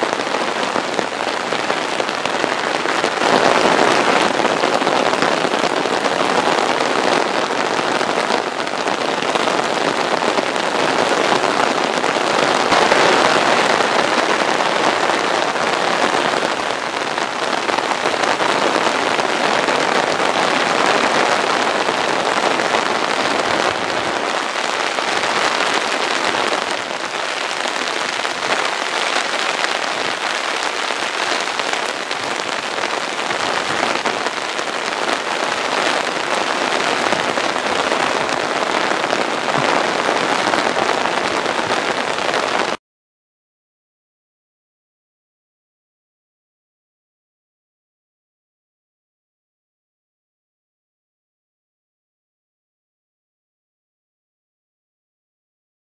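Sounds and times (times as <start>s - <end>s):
heavy rain pouring: 0.0s - 42.8s.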